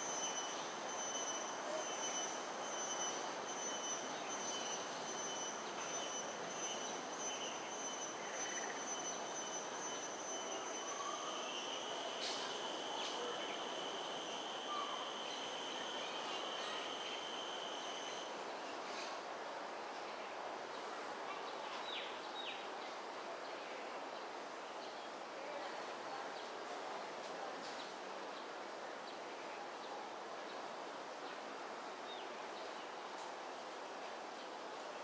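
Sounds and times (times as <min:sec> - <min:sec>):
high-pitched whine: 0:00.0 - 0:18.4
outdoor background rush: 0:00.0 - 0:35.0.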